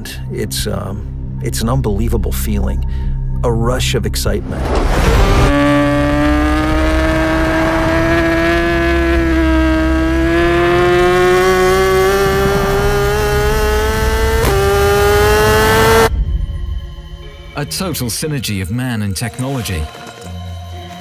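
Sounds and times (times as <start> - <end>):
motorcycle engine at high revs: 5.2 - 16.1.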